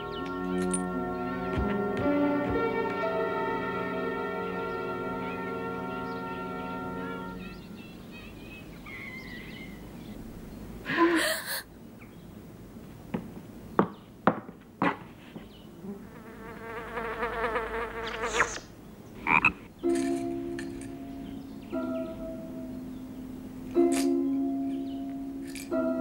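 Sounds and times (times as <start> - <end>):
cartoon frog croaking: 18.0 - 19.7.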